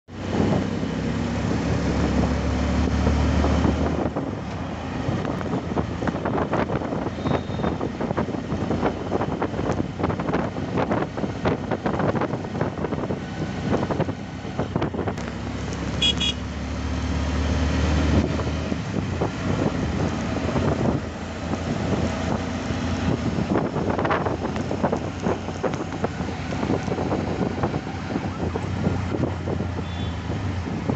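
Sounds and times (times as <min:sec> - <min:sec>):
passing vehicle engine rumble: 0:00.0 - 0:30.9
road traffic: 0:00.0 - 0:30.9
wind buffeting microphone: 0:00.2 - 0:15.9, 0:17.9 - 0:30.9
short high-pitched horn: 0:16.0 - 0:16.4.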